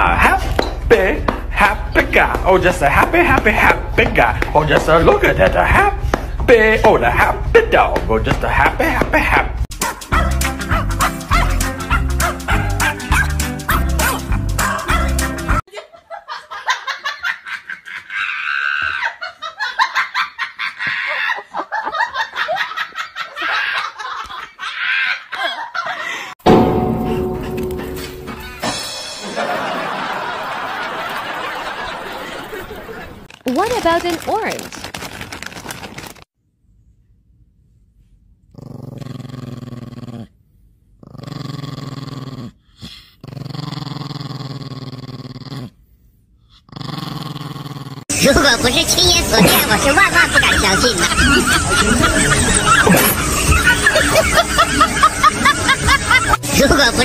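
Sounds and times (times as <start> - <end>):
person laughing hard: 14.6 - 26.3, 49.3 - 56.5
small dog growling: 38.5 - 40.4, 41.0 - 45.8, 46.5 - 48.1.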